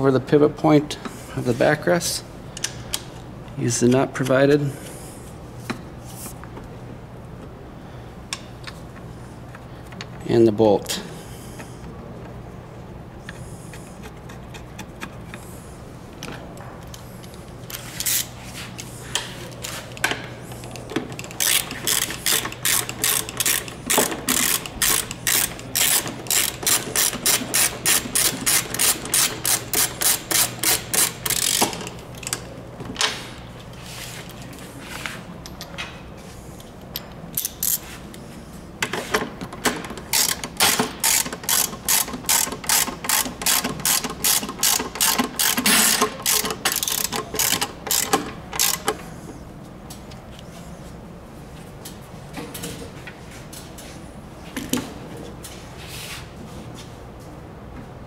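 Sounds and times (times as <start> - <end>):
ratchet wrench clicking: 20.6 - 32.4, 37.0 - 37.8, 40.1 - 49.0.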